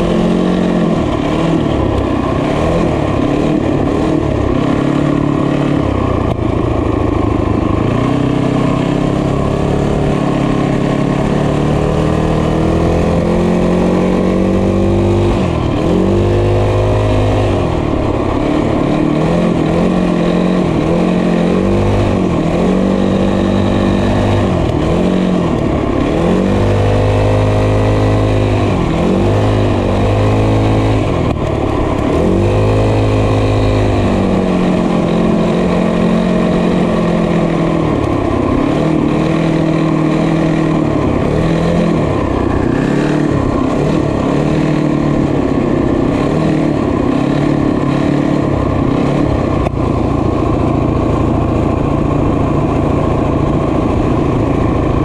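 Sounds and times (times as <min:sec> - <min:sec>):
small motorbike engine revving: 0:00.0 - 0:55.0.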